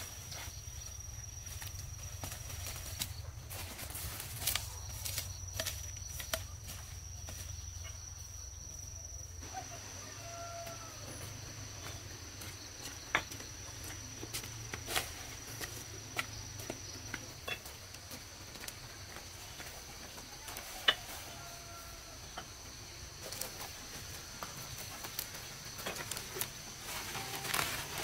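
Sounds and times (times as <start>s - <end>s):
high insect trill: 0.0s - 28.0s
rustle of carried leaves: 23.2s - 28.0s.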